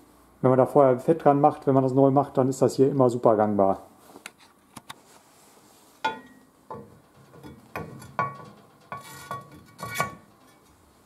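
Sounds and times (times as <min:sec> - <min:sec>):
metal plate clinking: 0:06.0 - 0:10.8.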